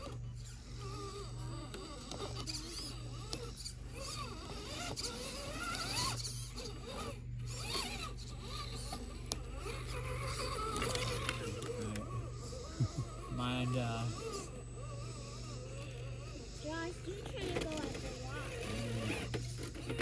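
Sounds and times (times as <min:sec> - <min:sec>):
electric motor whining: 0:00.0 - 0:20.0.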